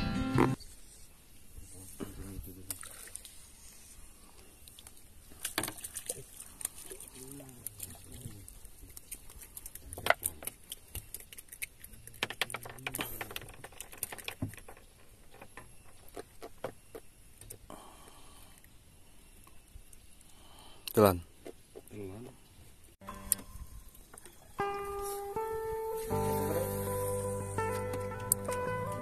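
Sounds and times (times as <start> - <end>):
fishing tackle clicking and knocking: 9.7 - 17.6.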